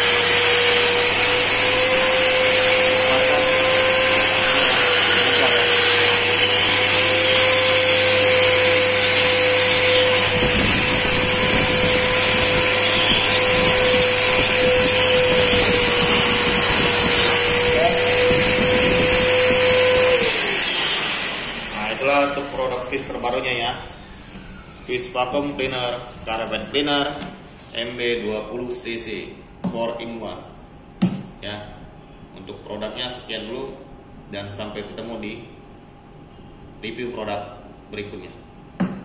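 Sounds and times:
vacuum motor whine: 0.0s - 27.4s.

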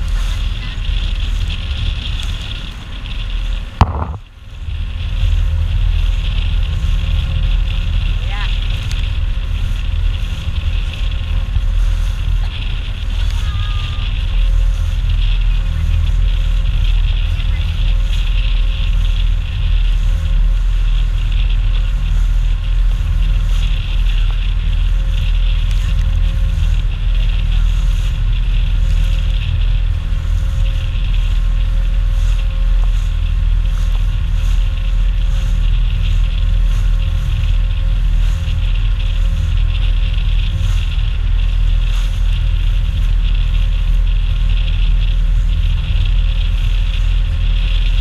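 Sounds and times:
water rushing past hull: 0.0s - 45.6s
boat engine running: 0.0s - 48.0s
faint constant hum: 0.0s - 48.0s
wind buffeting microphone: 0.0s - 48.0s.

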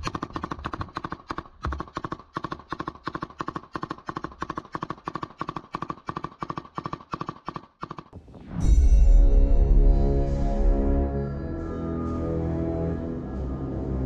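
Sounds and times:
machine gun firing bursts: 0.0s - 8.2s.

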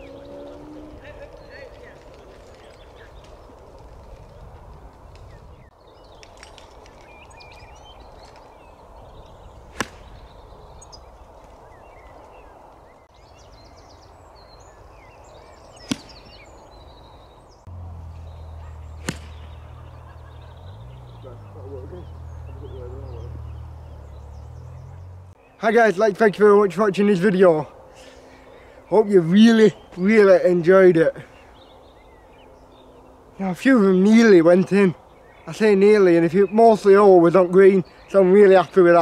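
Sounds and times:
birds chirping: 0.0s - 39.0s
golf club striking ball: 9.7s - 10.2s, 15.8s - 16.4s, 18.8s - 19.7s.

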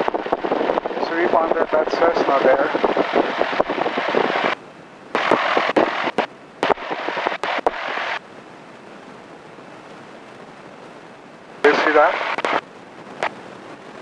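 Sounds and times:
crackling headset static: 0.0s - 14.0s
low steady hiss: 0.0s - 14.0s
sharp clicks: 5.2s - 8.2s, 12.2s - 12.6s.

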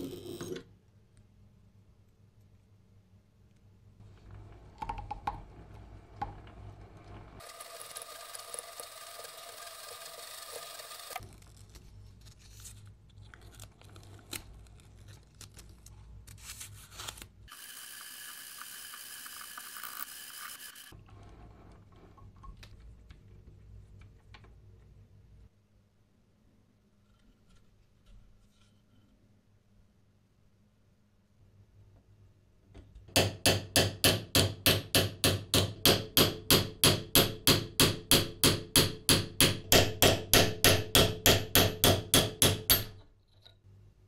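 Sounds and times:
rustling of wire and paper: 11.2s - 17.4s.

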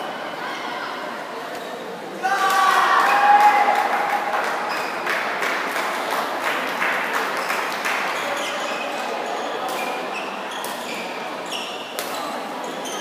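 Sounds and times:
crowd murmur: 0.0s - 13.0s
shoes squeaking on court: 8.2s - 13.0s.

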